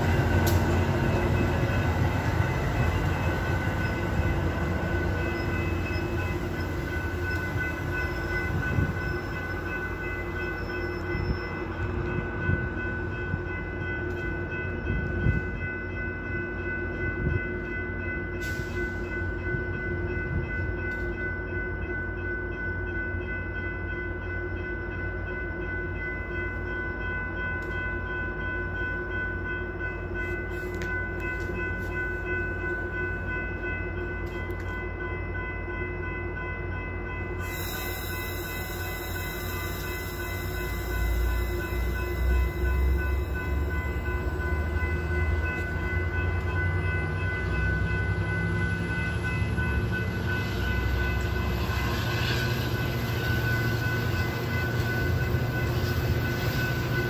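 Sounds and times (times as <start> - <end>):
diesel train rumble: 0.0 - 57.0
high-pitched whine: 37.4 - 45.8.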